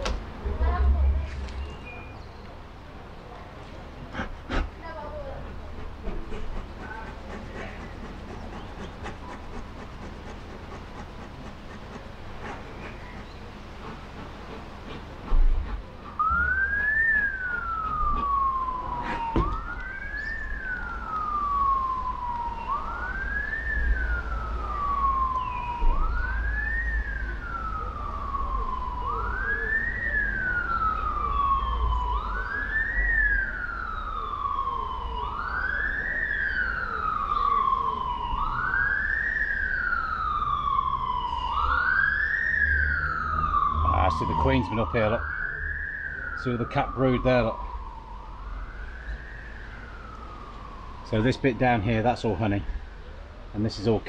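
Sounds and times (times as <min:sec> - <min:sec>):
low rumble: 0:00.0 - 0:03.1
siren wailing: 0:15.6 - 0:54.0.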